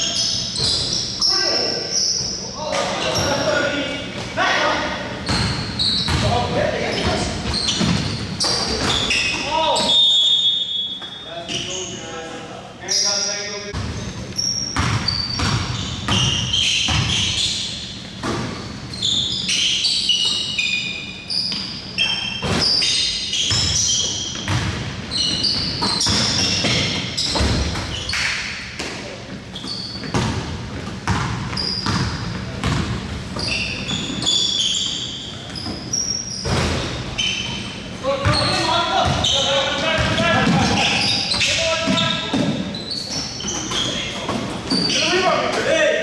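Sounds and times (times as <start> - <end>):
sneaker squeaks on floor: 0.0 - 12.1, 12.8 - 45.7
basketball bouncing on court: 5.2 - 9.4, 14.7 - 17.5, 23.4 - 28.0, 29.6 - 34.2, 38.2 - 42.6.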